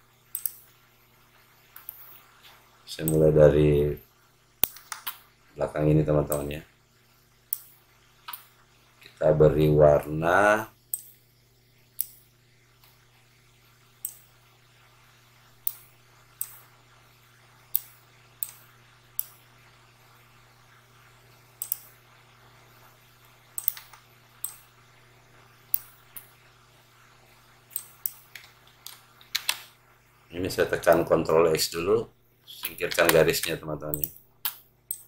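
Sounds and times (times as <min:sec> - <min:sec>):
faint low hum: 0:00.0 - 0:35.0
computer mouse clicks: 0:00.3 - 0:00.7, 0:01.7 - 0:02.3, 0:04.6 - 0:05.2, 0:06.3 - 0:06.5, 0:07.5 - 0:08.5, 0:10.9 - 0:11.2, 0:12.0 - 0:12.2, 0:14.0 - 0:14.3, 0:15.6 - 0:16.7, 0:17.7 - 0:19.4, 0:21.6 - 0:22.0, 0:23.6 - 0:24.7, 0:25.7 - 0:26.4, 0:27.7 - 0:29.8, 0:32.6 - 0:35.0.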